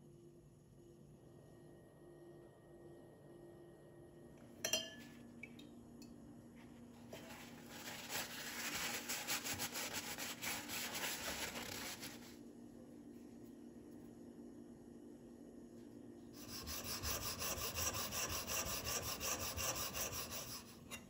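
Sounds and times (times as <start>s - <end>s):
paper towel rustling on knife: 6.9s - 12.4s.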